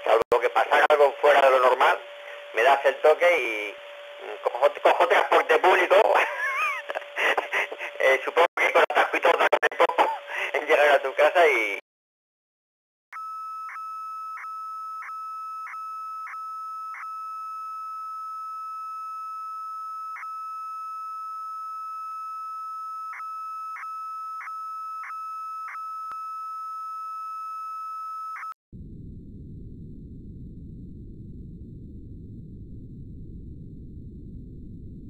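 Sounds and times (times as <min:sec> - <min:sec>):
steady high beep tone: 0:13.2 - 0:28.6.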